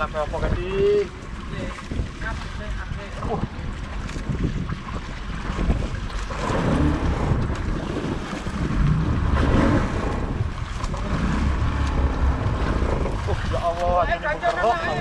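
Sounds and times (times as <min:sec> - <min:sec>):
sea waves washing: 0:00.0 - 0:15.0
wind buffeting microphone: 0:00.0 - 0:15.0.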